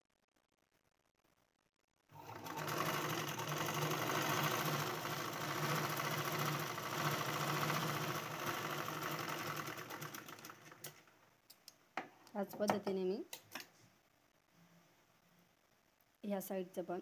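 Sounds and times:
sewing machine stitching: 0:02.1 - 0:11.1.

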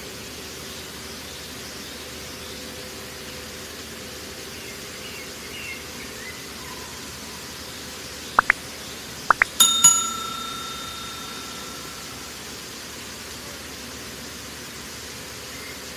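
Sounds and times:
notification bell dinging: 0:09.3 - 0:12.5.

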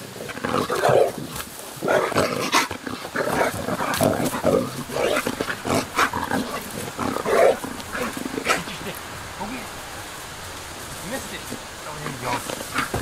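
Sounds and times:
dog growling playfully: 0:00.0 - 0:09.0, 0:12.0 - 0:13.0.

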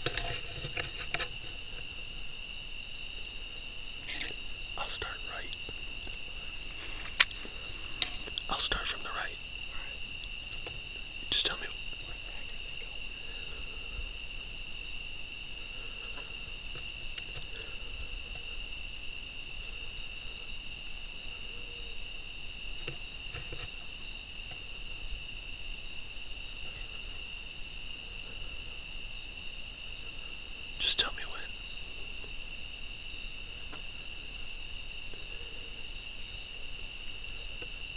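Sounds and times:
crickets trilling: 0:00.0 - 0:37.9
faint soft clicks: 0:07.0 - 0:08.5.

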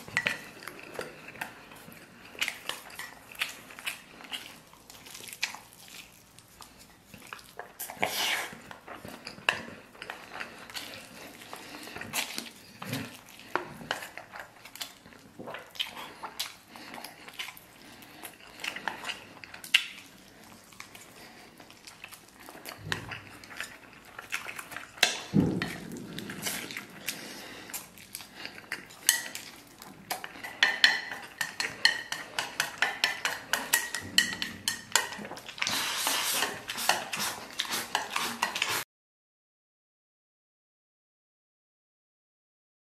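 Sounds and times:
chewing and mouth sounds: 0:00.0 - 0:38.8
long slurp: 0:35.6 - 0:38.8.

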